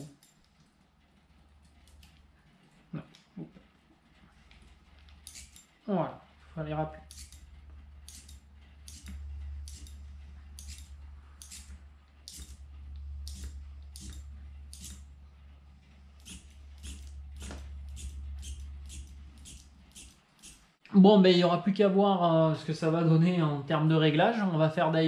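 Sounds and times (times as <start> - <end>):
low steady hum: 0.0 - 25.0
derailleur motor whirr-click: 5.1 - 5.8, 7.1 - 15.1, 16.2 - 20.8.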